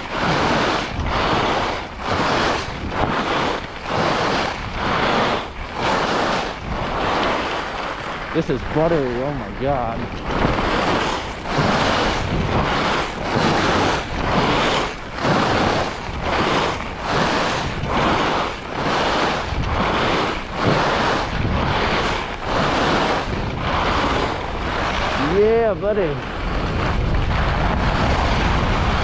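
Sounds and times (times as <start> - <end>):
wind on microphone: 0.0 - 29.0
ski edges scraping snow: 0.1 - 29.0.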